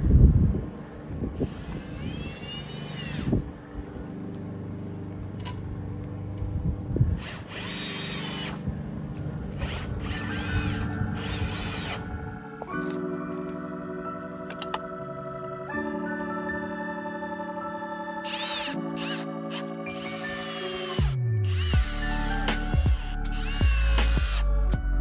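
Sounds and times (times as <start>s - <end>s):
cordless drill driving screws: 1.4s - 3.4s, 7.2s - 8.6s, 9.5s - 12.1s, 18.2s - 24.5s.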